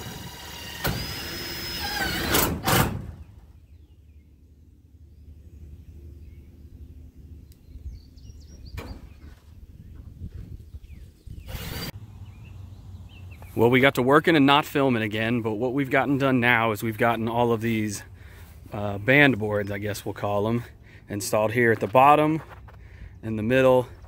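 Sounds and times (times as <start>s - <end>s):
cordless drill whining: 0.0s - 2.6s, 11.5s - 11.9s.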